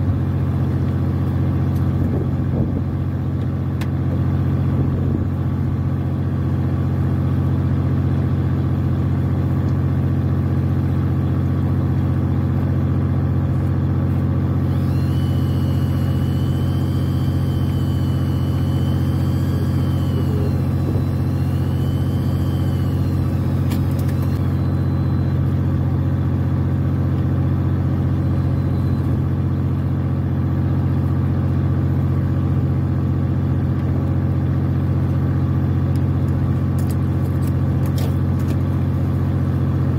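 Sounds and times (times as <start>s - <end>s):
boat engine humming: 9.9s - 31.0s
wavering high whine: 14.6s - 30.0s.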